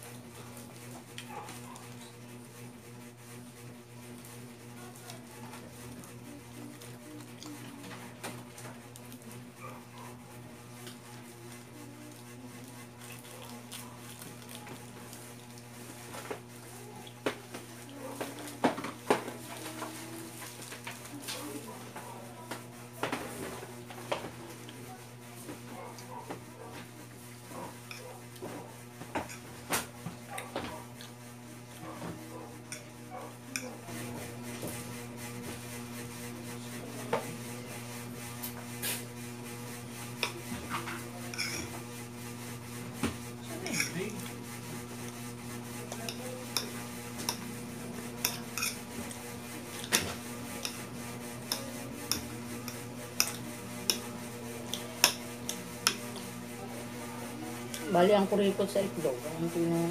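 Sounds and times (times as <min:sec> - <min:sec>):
person chewing food: 0:12.9 - 0:15.7.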